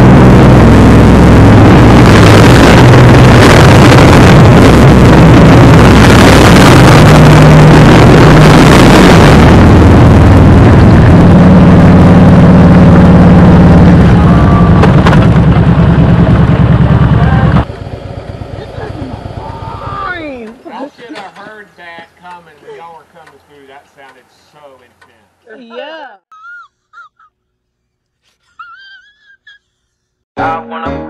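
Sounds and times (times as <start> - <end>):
wind rush on microphone: 0.0 - 17.7
motorcycle engines in a tunnel: 8.8 - 25.2.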